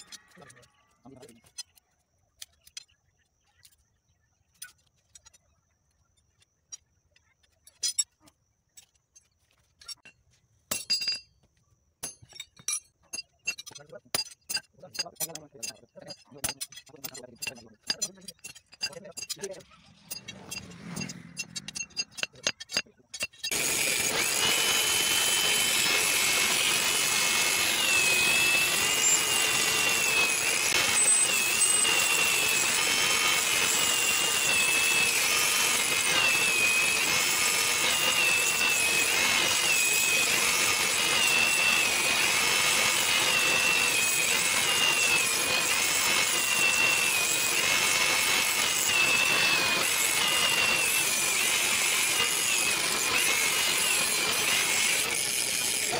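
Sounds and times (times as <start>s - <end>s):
drill bit squealing into steel: 12.6s - 55.9s.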